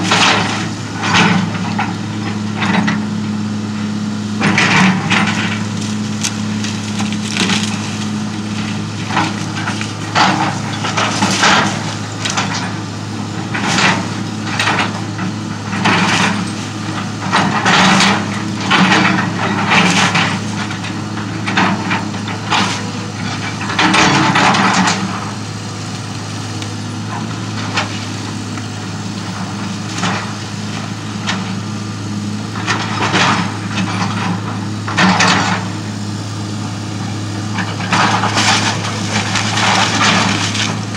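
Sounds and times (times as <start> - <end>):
excavator diesel engine running: 0.0 - 40.9
wood cracking and splintering: 4.4 - 20.9, 37.7 - 40.9
timber collapsing crash: 4.6 - 12.7, 38.0 - 40.9.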